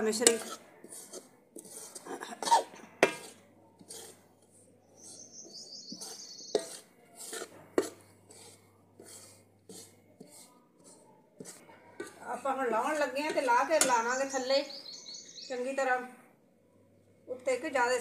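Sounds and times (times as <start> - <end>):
steel spoon scraping metal pan: 0.0 - 14.8
spoon knocking against pan: 3.0 - 3.4, 5.9 - 14.3.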